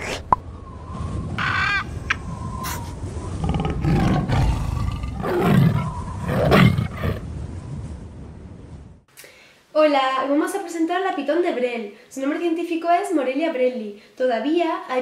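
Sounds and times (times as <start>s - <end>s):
high-pitched animal call: 1.4s - 7.1s
tiger roars: 3.4s - 7.2s.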